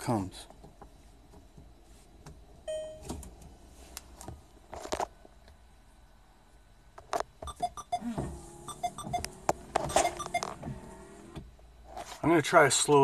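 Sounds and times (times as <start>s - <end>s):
clicks and thump in car: 0.4s - 5.0s, 7.0s - 11.6s
short electronic tones: 7.4s - 8.1s, 8.7s - 10.6s
windshield wiper motor: 8.0s - 11.5s.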